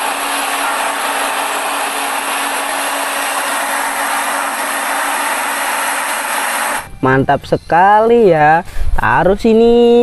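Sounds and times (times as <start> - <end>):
road roller engine droning: 0.0 - 6.9.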